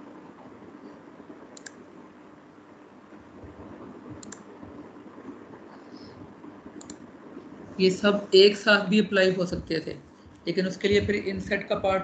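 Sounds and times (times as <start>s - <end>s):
faint steady hiss: 0.0s - 12.0s
computer mouse clicks: 1.6s - 1.8s, 4.1s - 4.5s, 6.8s - 7.1s.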